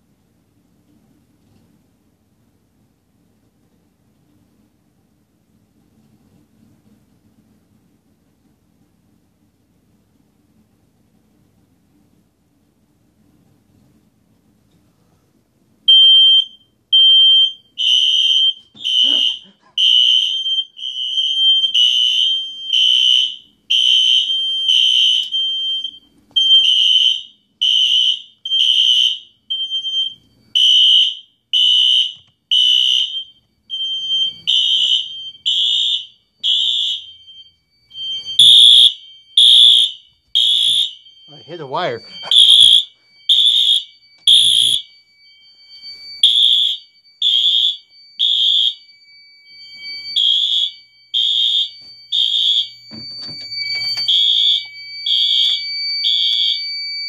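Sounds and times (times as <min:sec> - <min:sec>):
smoke alarm beeping: 0:15.8 - 0:57.0.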